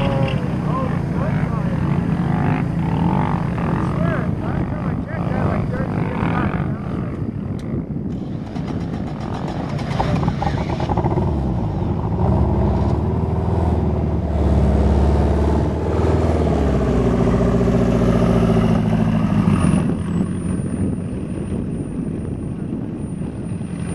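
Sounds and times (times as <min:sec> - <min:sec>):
dune buggy engines running: 0:00.0 - 0:23.9
engine revving up: 0:08.6 - 0:20.1.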